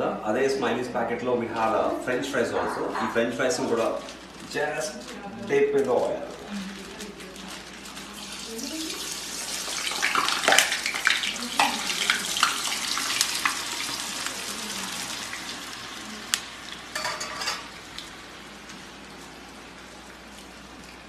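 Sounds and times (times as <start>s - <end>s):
fries sizzling in hot oil: 7.4s - 21.0s.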